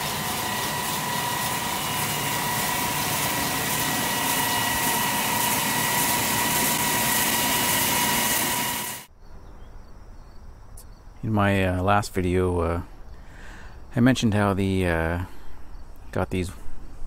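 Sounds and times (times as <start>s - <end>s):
wire stone saw hissing and whining: 0.0s - 9.1s.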